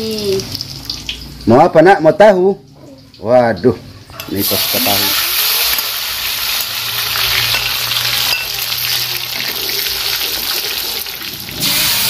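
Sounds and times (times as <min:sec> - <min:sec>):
food sizzling in hot oil: 0:00.0 - 0:01.5, 0:04.1 - 0:12.0
metal spatula stirring: 0:07.2 - 0:10.8.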